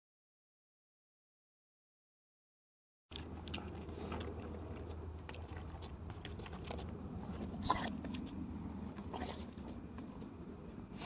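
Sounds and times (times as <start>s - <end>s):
dog panting: 3.1s - 11.0s.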